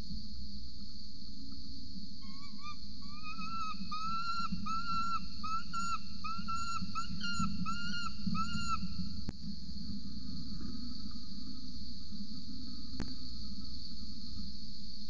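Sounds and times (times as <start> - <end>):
young falcon begging calls: 3.1 - 8.8.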